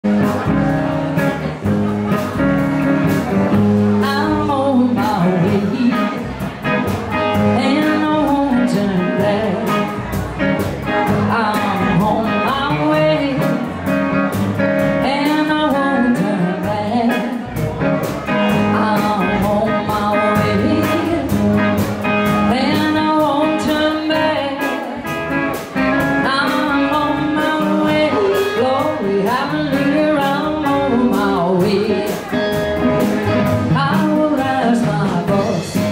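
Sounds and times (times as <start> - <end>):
electric guitar: 0.0 - 35.9
steady drum beat: 0.1 - 15.5, 25.0 - 35.9
acoustic guitar: 0.1 - 35.9
woman singing: 4.0 - 6.4, 7.4 - 10.1, 11.0 - 13.9, 14.9 - 17.6, 18.4 - 21.8, 22.4 - 25.1, 26.0 - 32.5, 33.5 - 35.9.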